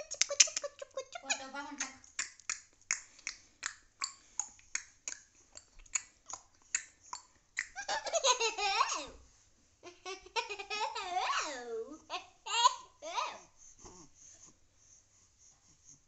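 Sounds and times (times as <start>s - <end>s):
young child laughing: 7.6s - 9.2s, 9.8s - 13.4s.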